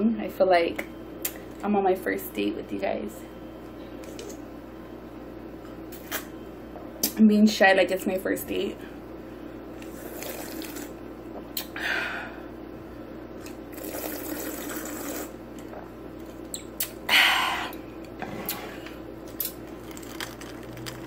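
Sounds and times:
sipping and swallowing drink: 0:09.8 - 0:11.8.

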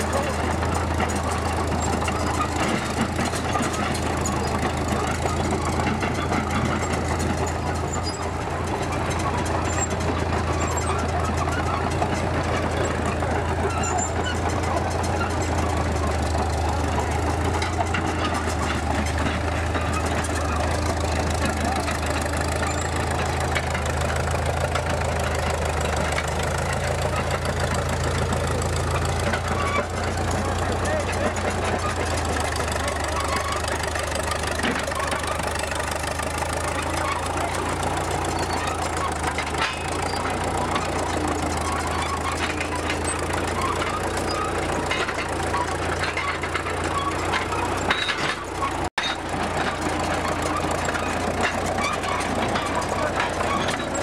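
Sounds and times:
dozer engine running: 0:00.0 - 0:54.0
steel tracks clattering: 0:00.0 - 0:54.0.

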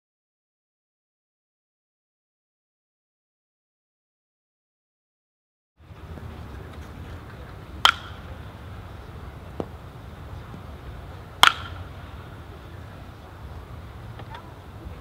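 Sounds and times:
outdoor background noise: 0:05.8 - 0:15.0
bat cracking ball: 0:05.9 - 0:08.6, 0:09.5 - 0:12.4.

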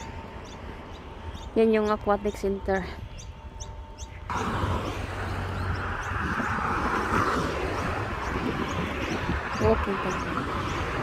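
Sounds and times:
small birds chirping: 0:00.0 - 0:11.0
cars passing on a road: 0:04.1 - 0:11.0.

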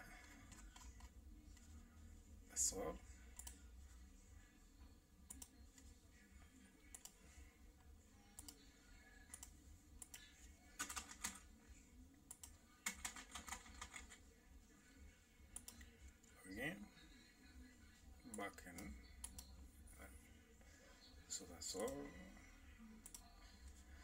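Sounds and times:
typing on computer keyboard: 0:10.8 - 0:11.4, 0:12.3 - 0:14.2.

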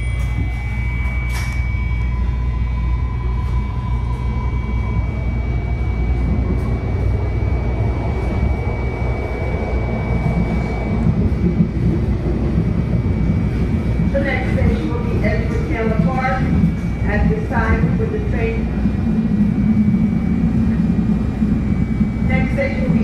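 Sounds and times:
thin high whine: 0:00.0 - 0:12.0
train rumble and wheel-on-rail noise: 0:00.0 - 0:23.0.

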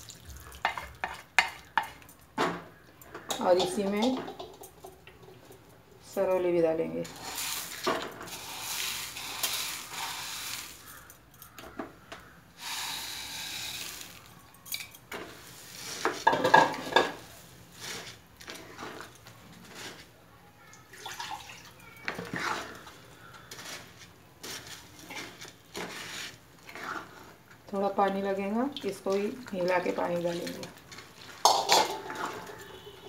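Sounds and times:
wooden spatula stirring in pan: 0:00.4 - 0:05.5, 0:15.1 - 0:20.2, 0:22.0 - 0:33.0
plate clattering against pan: 0:03.3 - 0:04.8, 0:16.2 - 0:17.2, 0:31.4 - 0:32.5.

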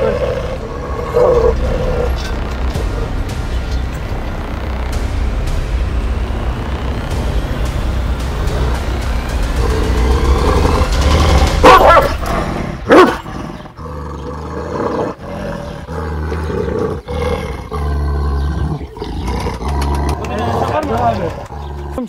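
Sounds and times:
dog barking loudly: 0:11.6 - 0:12.2, 0:12.9 - 0:13.3
dog growling low: 0:13.2 - 0:20.8.

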